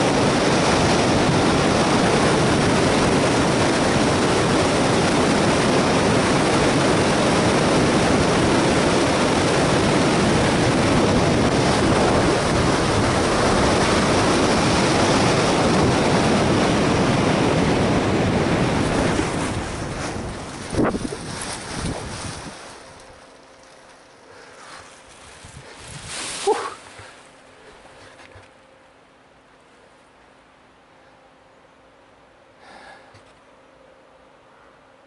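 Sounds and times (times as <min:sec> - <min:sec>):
wind rushing over microphone: 0:00.0 - 0:23.2, 0:25.2 - 0:27.0.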